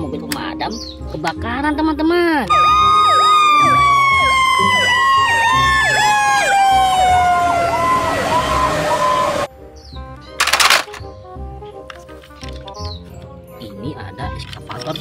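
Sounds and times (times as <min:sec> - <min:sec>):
siren wail sliding down: 0:02.5 - 0:09.5
yelping siren: 0:02.5 - 0:09.5.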